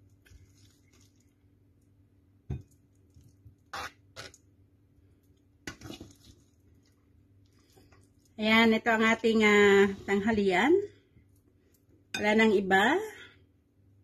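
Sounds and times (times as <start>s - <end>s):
salad scraping and squishing: 0.0s - 1.4s, 3.1s - 4.4s, 5.7s - 8.4s.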